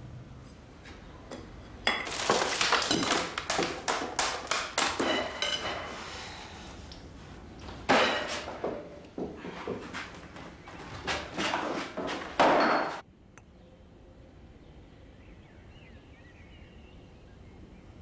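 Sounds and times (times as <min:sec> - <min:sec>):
metal tin and packaging clattering: 0:01.9 - 0:06.0.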